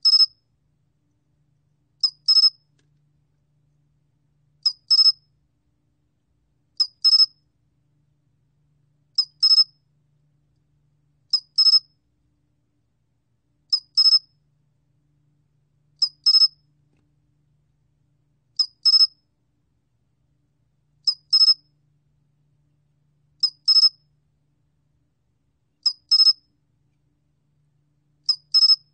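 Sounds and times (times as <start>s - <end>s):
cricket chirping: 2.0s - 2.6s, 6.8s - 7.3s, 9.2s - 9.7s, 13.7s - 14.3s, 21.1s - 21.6s, 23.4s - 24.0s, 25.8s - 26.4s, 28.3s - 28.8s.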